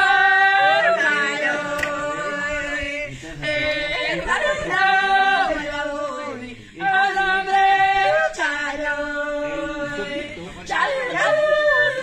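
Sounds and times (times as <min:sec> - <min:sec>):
women singing unaccompanied: 0:00.0 - 0:12.0.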